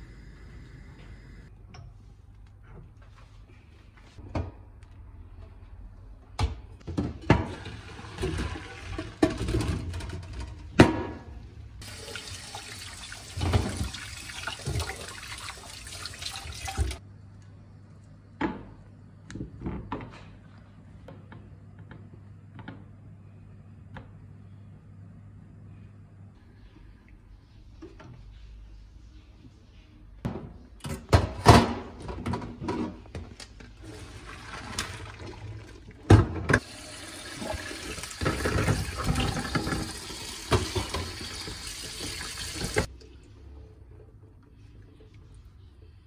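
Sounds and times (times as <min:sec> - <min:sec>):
tap water running: 0:11.8 - 0:17.0, 0:33.8 - 0:42.9.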